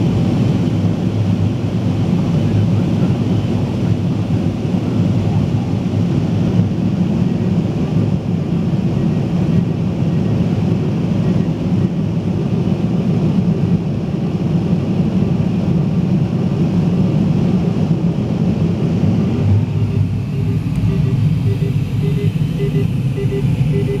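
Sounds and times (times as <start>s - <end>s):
faint short beeps: 19.8s - 24.0s.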